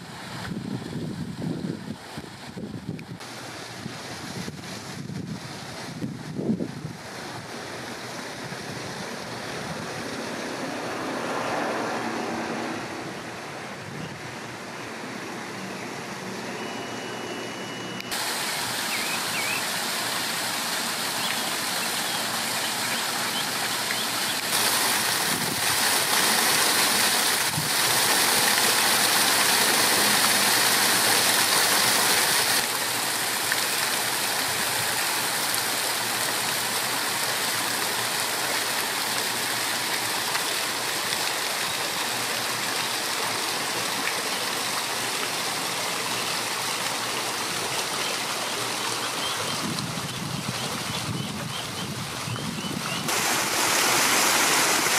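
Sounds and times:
waterfall fountain splashing: 0.0 - 17.4, 18.0 - 54.9
vehicle engine hum: 9.2 - 19.6.

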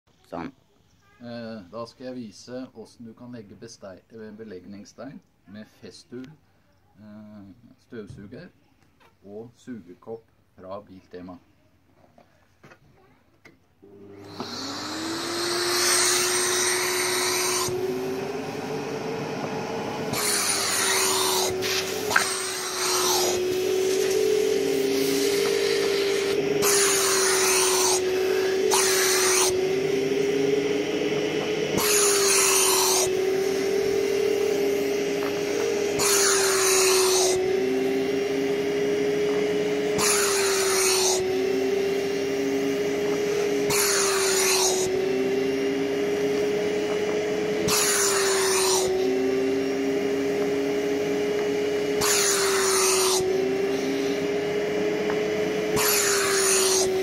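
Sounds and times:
dust extractor running: 13.8 - 57.0
air hissing through suction cup: 14.2 - 37.7.

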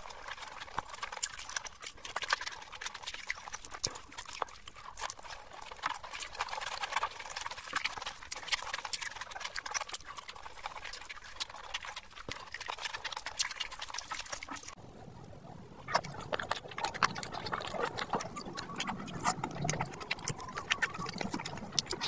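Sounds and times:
fingers squishing through rice: 0.0 - 14.8, 15.9 - 22.0
mouth smacking and chewing: 0.0 - 22.0.

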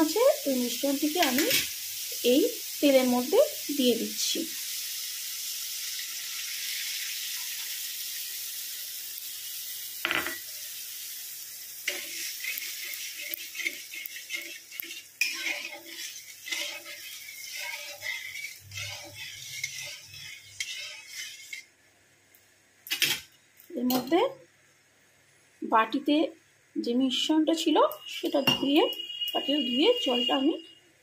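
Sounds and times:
hot oil sizzling: 0.0 - 21.8, 22.8 - 24.1, 27.6 - 30.6
metal spoon scraping a pan: 1.0 - 1.7, 11.8 - 21.7, 28.0 - 29.7.

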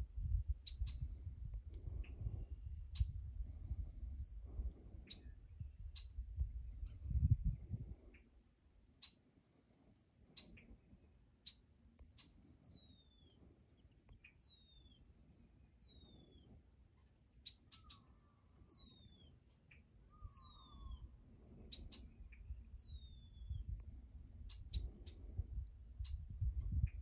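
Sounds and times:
faint low rumble: 0.0 - 19.3, 19.9 - 27.0
songbird whistling: 4.0 - 4.5, 6.8 - 7.6, 17.4 - 19.4, 20.1 - 21.1, 22.8 - 23.7.

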